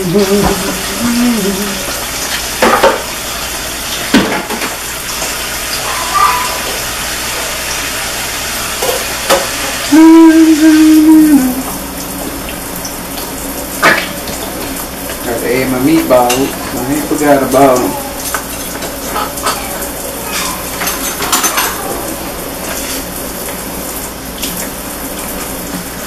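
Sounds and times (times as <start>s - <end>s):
voice holding a loud note: 0.0s - 1.9s, 9.9s - 11.8s
food sizzling in a pan: 0.0s - 26.0s.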